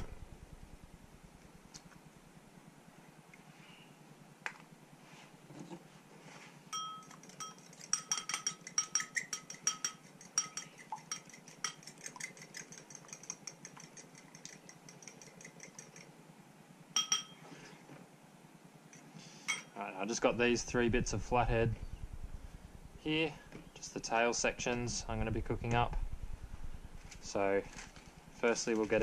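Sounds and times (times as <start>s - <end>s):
fork whisking egg in bowl: 6.8s - 16.1s.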